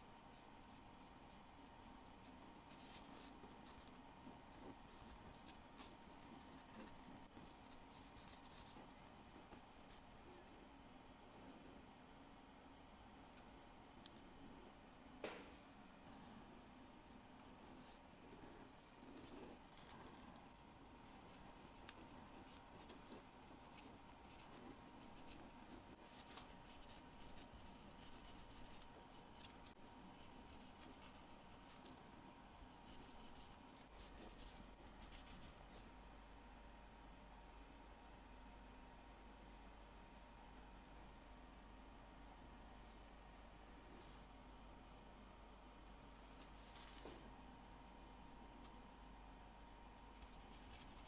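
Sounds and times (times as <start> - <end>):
faint steady hum: 0.0 - 51.0
faint light scratching: 17.6 - 32.1, 50.0 - 51.0.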